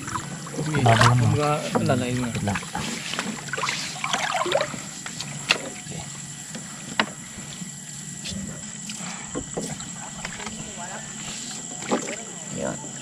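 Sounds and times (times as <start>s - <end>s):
river water splashing: 0.0s - 4.9s.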